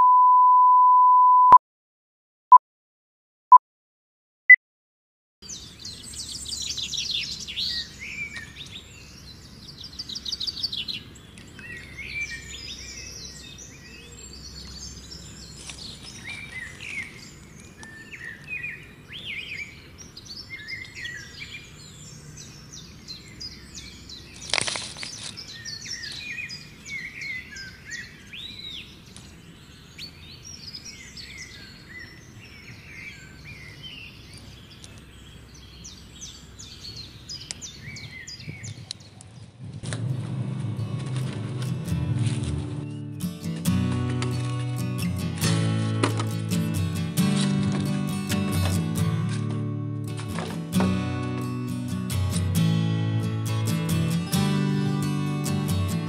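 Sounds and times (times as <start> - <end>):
small birds chirping and trilling: 5.4 - 39.6
steady outdoor background noise: 5.4 - 56.0.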